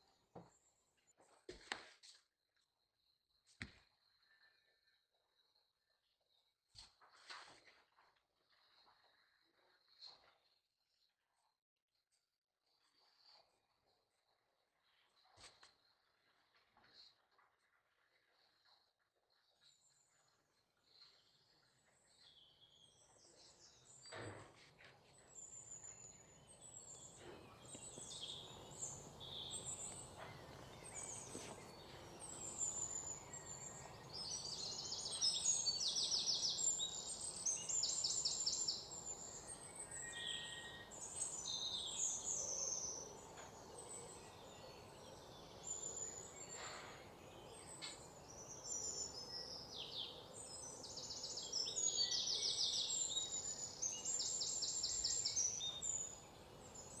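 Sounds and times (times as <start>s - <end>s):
small birds chirping: 18.2s - 57.0s.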